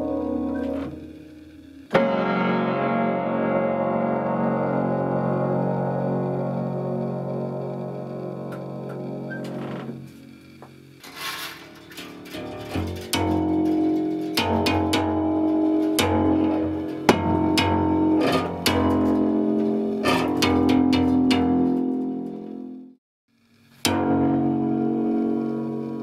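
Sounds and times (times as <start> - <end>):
piano bass strings struck: 1.9 - 10.6, 12.2 - 23.0.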